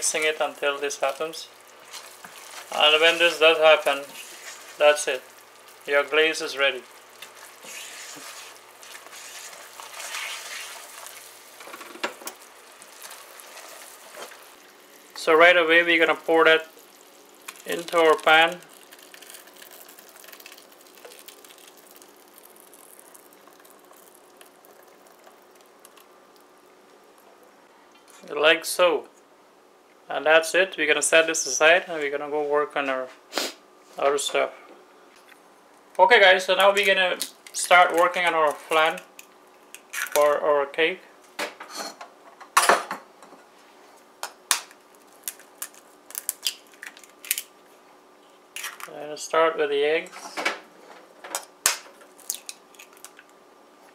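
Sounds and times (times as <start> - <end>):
caramel crackling and bubbling: 0.0 - 27.7, 35.9 - 40.4, 44.4 - 49.1, 51.5 - 53.9.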